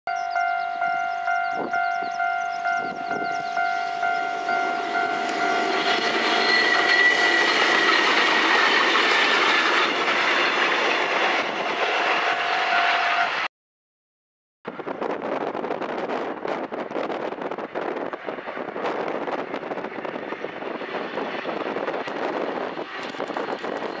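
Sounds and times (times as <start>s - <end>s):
level-crossing bell ringing: 0.1s - 7.9s
high whine: 0.1s - 13.5s
train passing: 0.1s - 13.5s, 14.7s - 24.0s.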